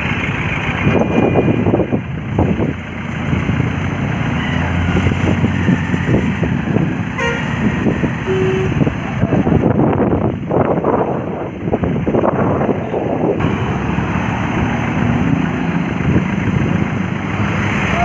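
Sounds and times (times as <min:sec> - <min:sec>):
heavy road traffic: 0:00.0 - 0:18.0
trucks passing: 0:00.0 - 0:18.0
horn toots: 0:07.1 - 0:08.9.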